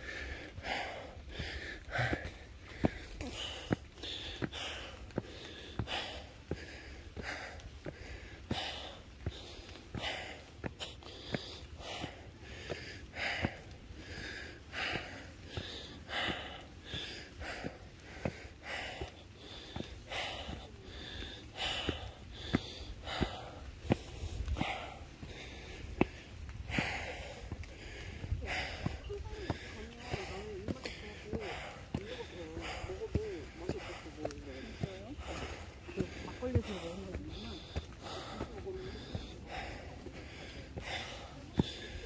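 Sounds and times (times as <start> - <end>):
person panting hard: 0.0 - 42.0
footfalls on wooden steps: 0.1 - 42.0.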